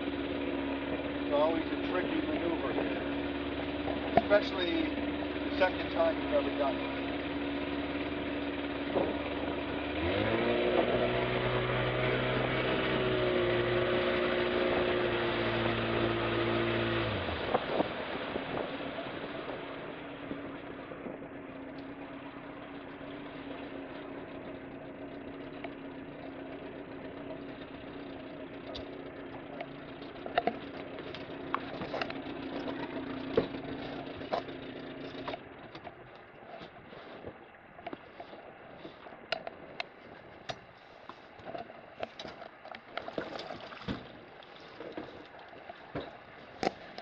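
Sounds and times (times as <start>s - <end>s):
boat motor idling: 0.0s - 47.0s
sharp knocks and clicks: 29.6s - 34.5s.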